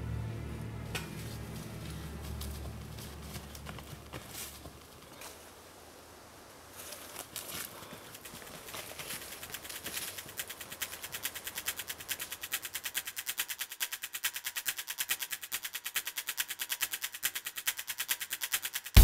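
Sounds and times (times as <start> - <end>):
fast even clicking: 8.0 - 19.0.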